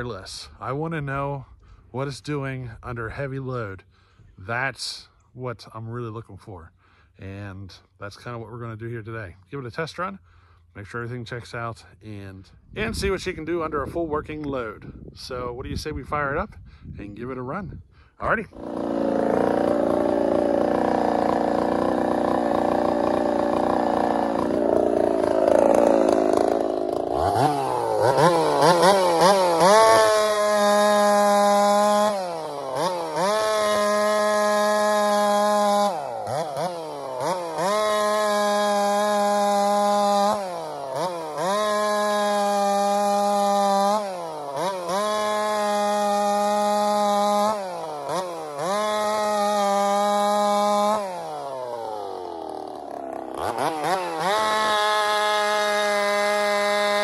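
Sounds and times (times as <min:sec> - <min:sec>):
chainsaw cutting log: 0:18.5 - 0:57.0.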